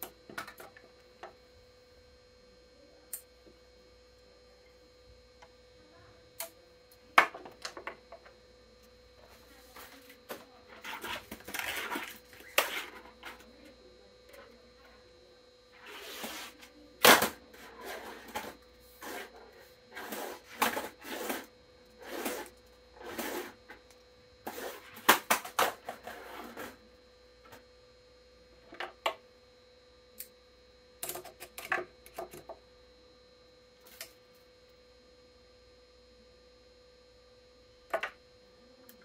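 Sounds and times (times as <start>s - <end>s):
faint steady hum: 0.0s - 39.0s.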